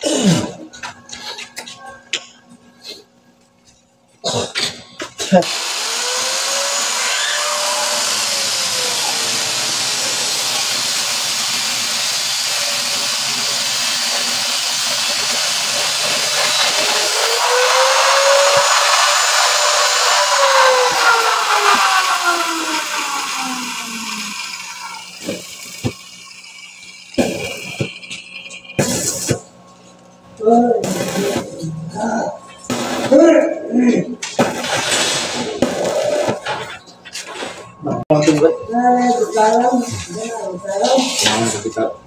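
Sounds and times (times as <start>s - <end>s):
angle grinder on steel: 5.4s - 29.5s.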